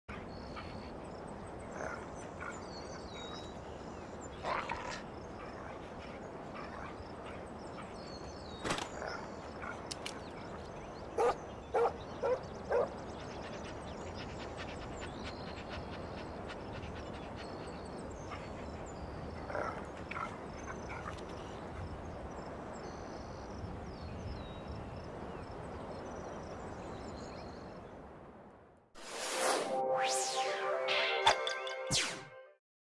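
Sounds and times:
dog barking: 11.2 - 12.9.

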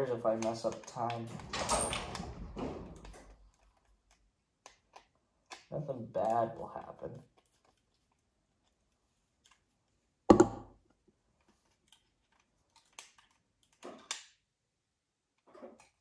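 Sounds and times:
light clicks and scrapes: 0.3 - 10.0.

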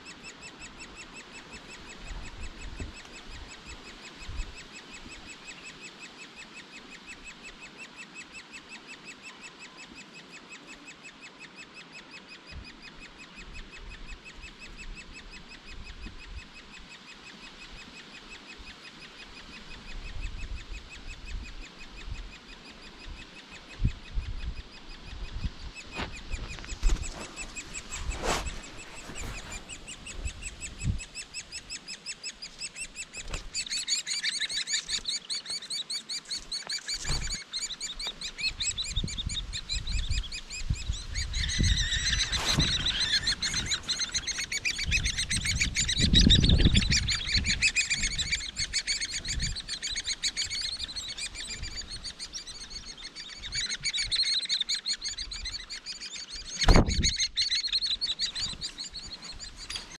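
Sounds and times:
nestlings high chattering: 25.9 - 60.0.

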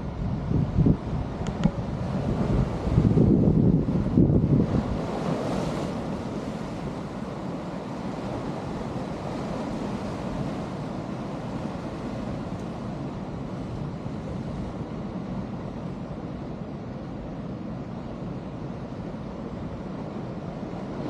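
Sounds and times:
wind buffeting microphone: 0.0 - 16.8.

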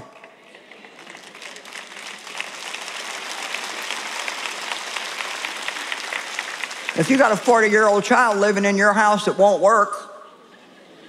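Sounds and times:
large audience applauding: 0.0 - 8.4.

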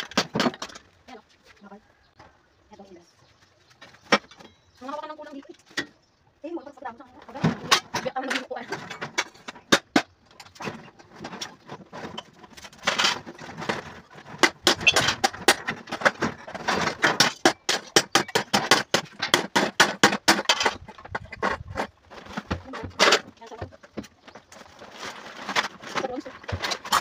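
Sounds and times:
household items clattering: 0.0 - 1.2, 6.8 - 27.0
plastic sack rustling: 24.3 - 27.0.

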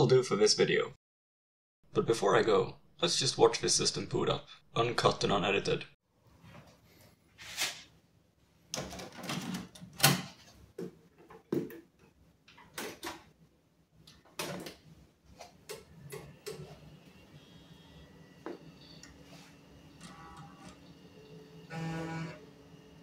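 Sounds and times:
computer fan and drive hum: 15.6 - 23.0.

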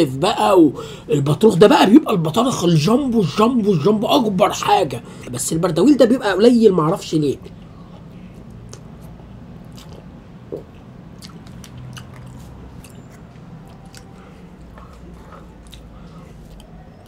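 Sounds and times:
low steady hum: 0.0 - 17.0
person chewing food: 7.5 - 17.0
wet mouth clicks: 8.4 - 14.8.

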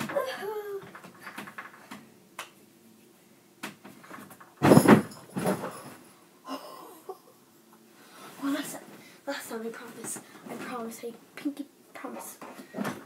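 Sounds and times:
heavy thud on mattress: 4.6 - 5.8.

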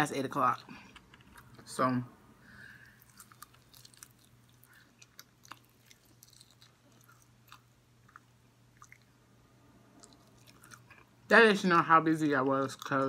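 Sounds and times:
mouth chewing and smacking: 2.9 - 9.2, 9.9 - 11.2.

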